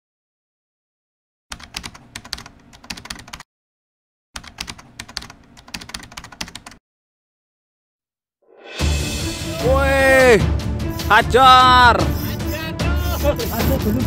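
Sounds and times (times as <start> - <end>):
rapid keyboard key clicks: 1.5 - 3.4, 4.4 - 6.8.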